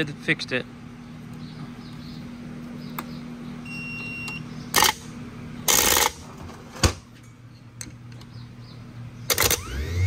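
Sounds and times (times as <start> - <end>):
short electronic beep: 3.6 - 4.4
starter motor spinning: 9.3 - 10.0.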